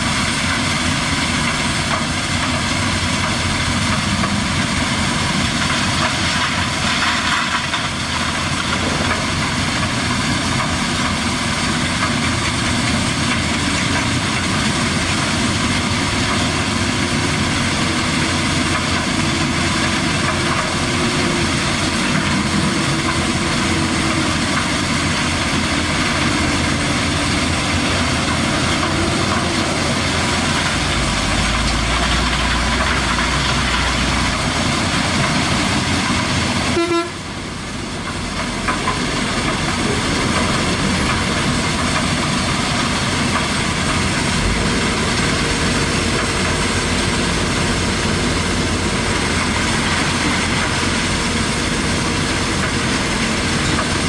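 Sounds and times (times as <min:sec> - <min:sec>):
excavator diesel engine: 0:00.0 - 0:54.0
gravel screening plant noise: 0:00.0 - 0:54.0.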